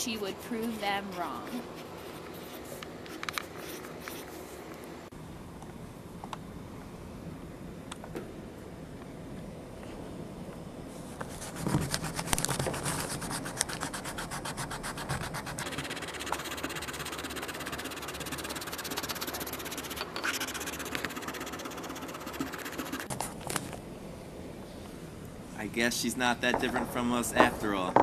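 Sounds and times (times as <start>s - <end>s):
pencil scratching on paper: 11.3s - 23.1s.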